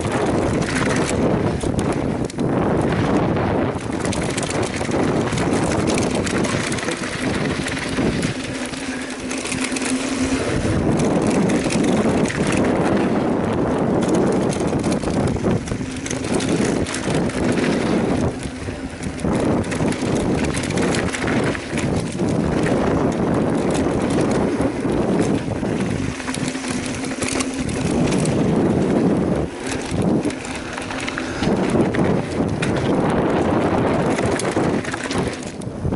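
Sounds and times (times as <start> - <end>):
bike rattling over bumps: 0.0 - 35.9
wind buffeting microphone: 0.0 - 35.9.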